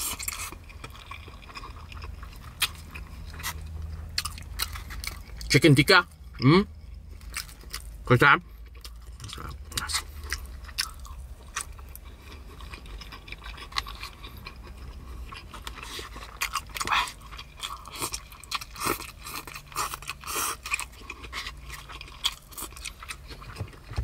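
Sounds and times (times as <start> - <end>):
person chewing food: 0.0 - 24.0.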